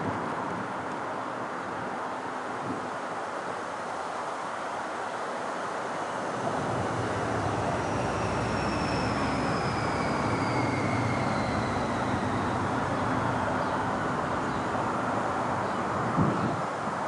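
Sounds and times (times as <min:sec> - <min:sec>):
jet engines drone: 0:00.0 - 0:17.0
high whine falling in pitch: 0:06.1 - 0:16.4.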